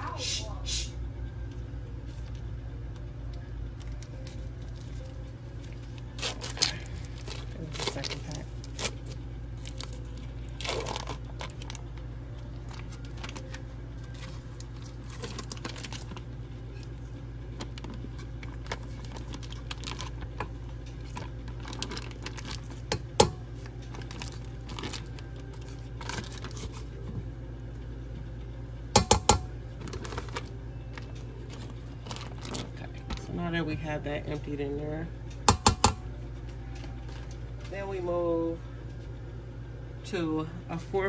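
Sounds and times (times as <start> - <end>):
steady low hum: 0.0 - 41.0
packaging crinkling and tearing: 3.8 - 22.9, 23.5 - 27.0, 29.8 - 33.3.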